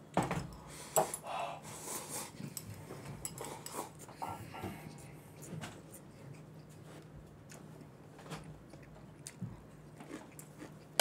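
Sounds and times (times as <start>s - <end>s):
person chewing: 5.0s - 11.0s.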